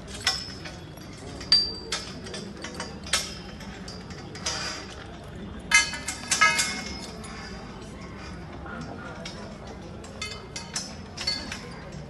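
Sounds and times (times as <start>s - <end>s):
scaffold tubes clinking: 0.0s - 12.0s.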